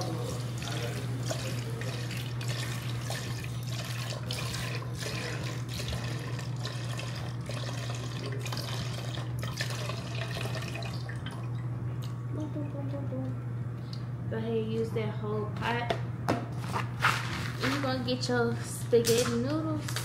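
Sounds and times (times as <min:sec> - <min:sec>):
liquid pouring and splashing: 0:00.0 - 0:12.2
constant low hum: 0:00.0 - 0:20.0.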